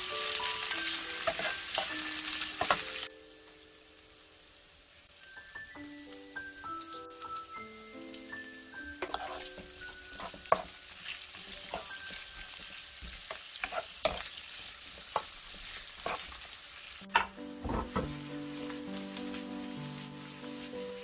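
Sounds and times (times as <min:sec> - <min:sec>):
tinkling music melody: 0:00.0 - 0:03.9, 0:05.2 - 0:12.8
meat sizzling in a frying pan: 0:00.0 - 0:21.0.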